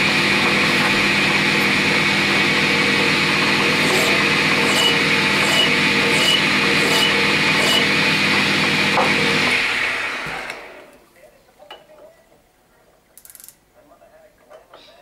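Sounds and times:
metal lathe running: 0.0s - 10.8s
file scraping spinning metal: 2.0s - 9.6s.

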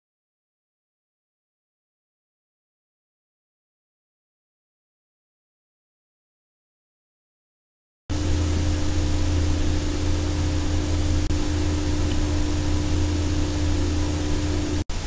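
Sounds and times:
even hiss: 8.1s - 15.0s
machine hum: 8.1s - 15.0s.

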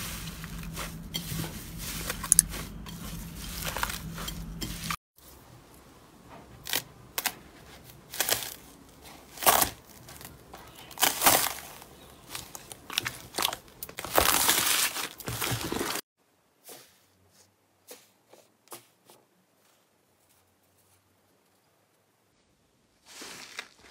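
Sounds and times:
slime crackling with foam beads: 8.1s - 16.0s.

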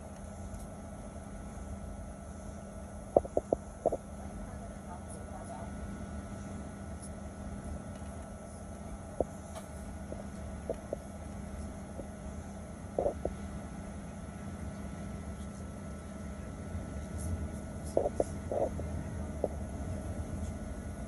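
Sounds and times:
aircraft cabin engine rumble: 14.6s - 21.0s.

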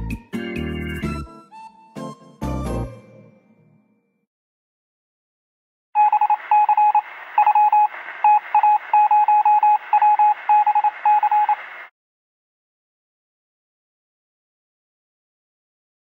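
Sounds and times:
morse code beeps: 6.0s - 11.6s
radio static: 6.0s - 11.9s.

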